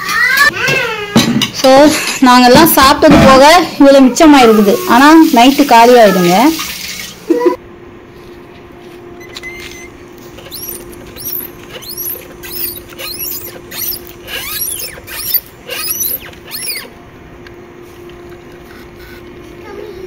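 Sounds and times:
steady low hum: 7.6s - 20.0s
small animal squeaky chirps: 9.4s - 16.9s.

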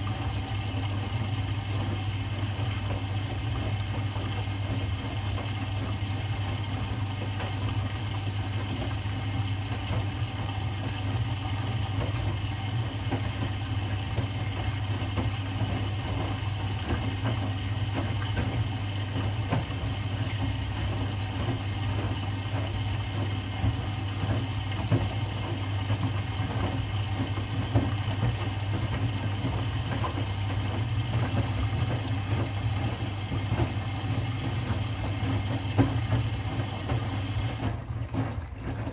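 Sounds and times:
washing machine motor hum: 0.0s - 38.9s
water sloshing: 10.9s - 38.9s.

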